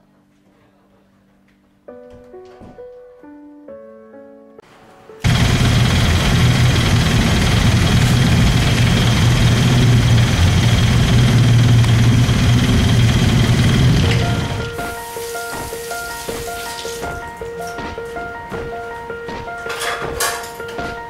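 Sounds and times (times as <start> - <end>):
vehicle engine low hum: 5.2 - 14.8.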